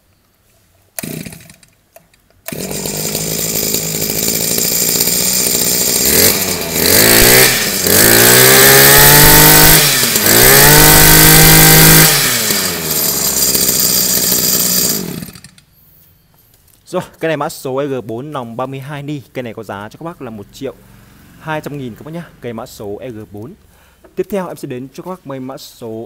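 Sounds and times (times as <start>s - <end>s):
brush cutter engine idling and revving: 1.0s - 1.8s, 2.5s - 15.6s, 20.5s - 22.8s
pull starter cord: 1.0s - 15.7s.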